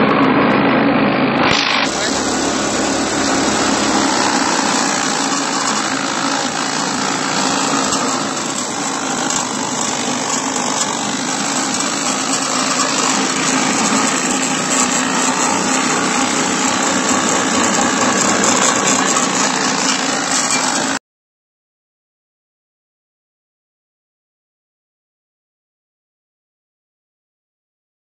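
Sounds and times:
small engine running: 1.2 - 21.0
chopper shredding banana stem: 1.4 - 21.0.

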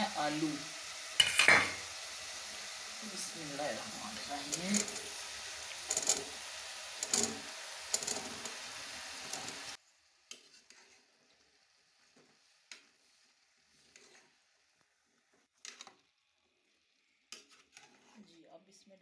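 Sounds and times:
steady sizzle: 0.0 - 19.0
metal spoon stirring in pot: 1.2 - 1.8, 3.6 - 11.4, 12.2 - 14.5, 17.3 - 18.3.

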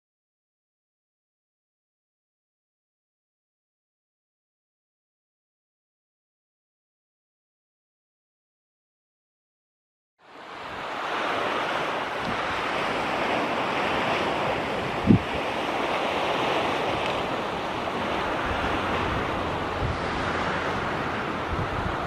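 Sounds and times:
small waves lapping: 10.3 - 22.0
wind rushing: 10.6 - 22.0.

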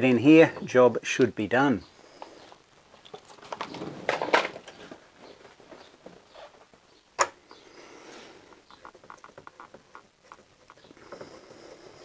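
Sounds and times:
plastic connectors rustling: 2.4 - 6.8.

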